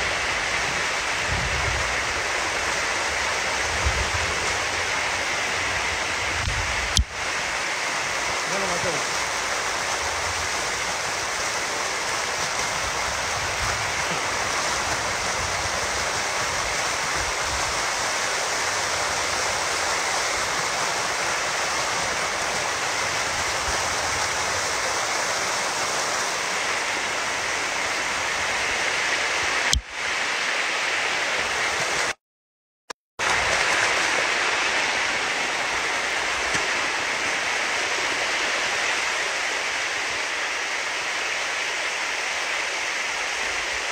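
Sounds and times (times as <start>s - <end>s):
water rushing over rocks: 0.0s - 32.2s, 33.2s - 43.9s.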